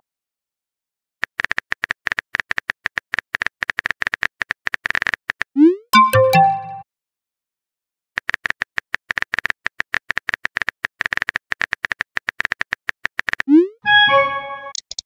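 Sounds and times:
keyboard typing clicks: 0:14.7 - 0:15.0.

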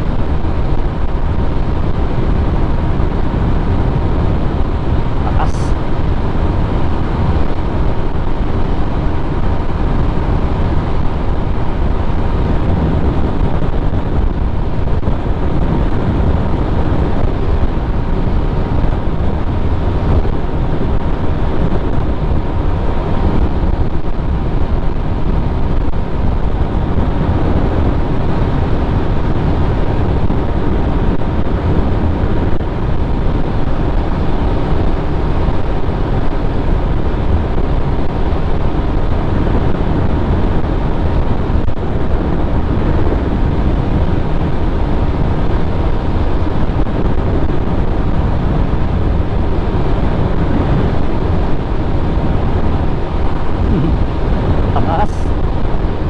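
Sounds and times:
wind rushing on microphone: 0:00.0 - 0:56.0.

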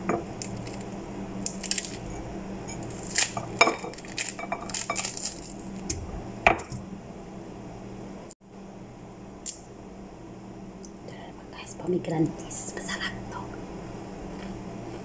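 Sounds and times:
pomegranate rind cracking and tearing: 0:00.3 - 0:02.2, 0:02.8 - 0:06.0.

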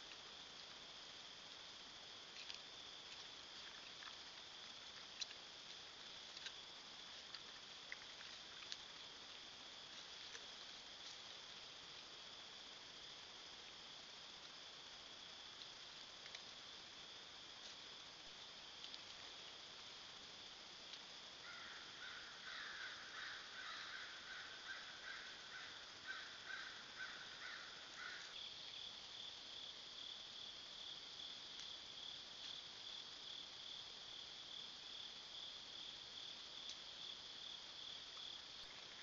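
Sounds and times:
night insects droning: 0:00.0 - 0:39.0.

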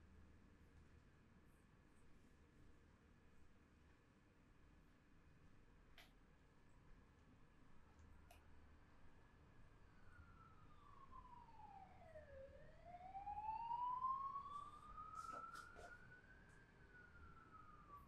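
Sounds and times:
faint siren wailing: 0:08.7 - 0:18.0.

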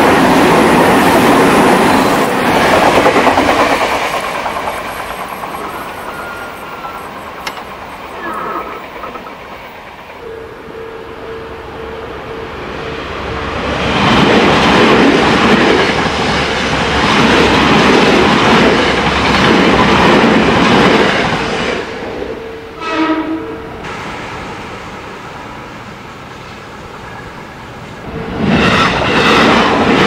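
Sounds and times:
train wheels clattering over rails: 0:00.0 - 0:10.2, 0:13.8 - 0:22.0, 0:23.8 - 0:30.0
crossing warning bell ringing: 0:04.9 - 0:09.2, 0:10.2 - 0:13.7, 0:22.2 - 0:23.9
horn-like tone: 0:10.2 - 0:13.6, 0:22.3 - 0:23.8.

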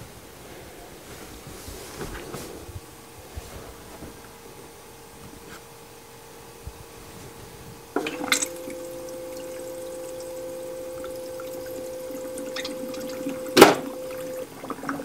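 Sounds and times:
ice maker humming: 0:07.9 - 0:15.0
circulating water: 0:08.0 - 0:15.0.

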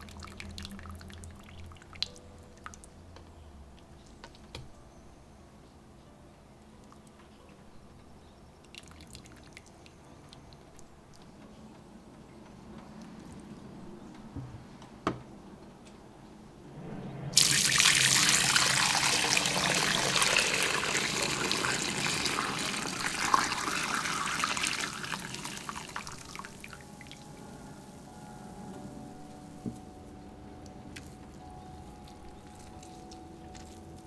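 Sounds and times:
broth pouring through a strainer: 0:00.0 - 0:02.1, 0:17.4 - 0:28.1.

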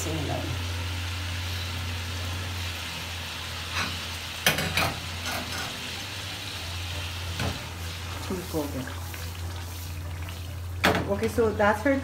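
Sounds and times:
curry sizzling in a pot: 0:00.0 - 0:12.0
metal pot clanking on grate: 0:03.7 - 0:05.8.

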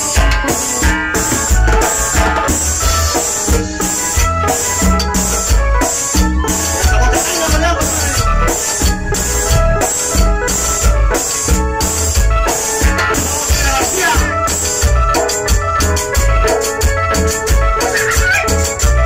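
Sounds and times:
electronic keyboard melody: 0:00.0 - 0:19.0
live cumbia band playing: 0:00.0 - 0:19.0.

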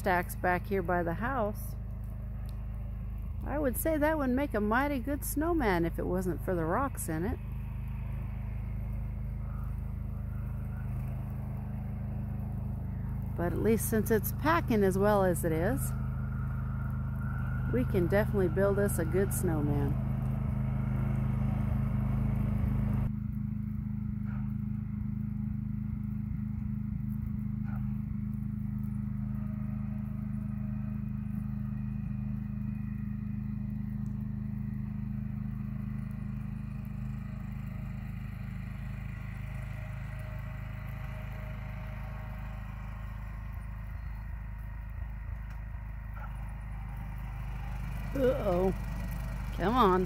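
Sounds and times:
garden tractor engine running: 0:00.0 - 0:50.0.

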